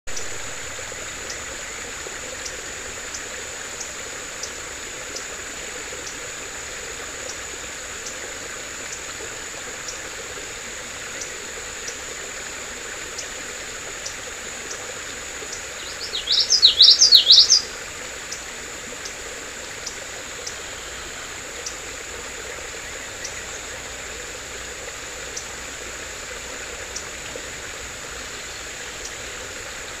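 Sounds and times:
creek running over rocks: 0:00.1 - 0:30.0
bird singing: 0:15.5 - 0:18.4, 0:22.8 - 0:23.9.

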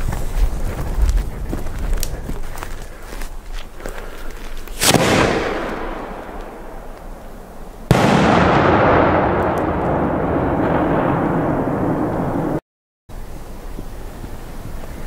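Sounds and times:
firework explosions: 0:04.6 - 0:12.6.

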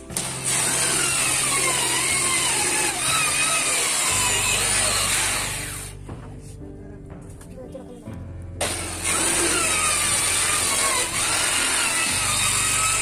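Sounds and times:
circular saw cutting plywood: 0:00.0 - 0:06.0, 0:08.6 - 0:13.0.

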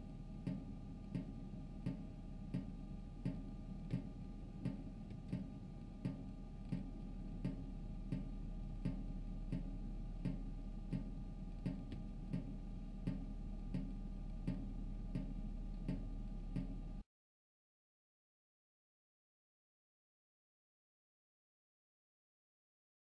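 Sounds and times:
low steady hum: 0:00.0 - 0:17.0
sharp ticks: 0:03.3 - 0:16.8.

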